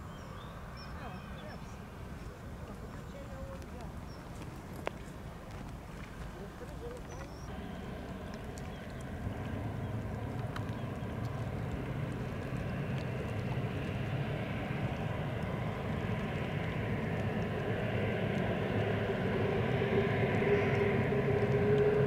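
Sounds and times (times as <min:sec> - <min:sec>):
jet engine drone: 0:07.5 - 0:22.0.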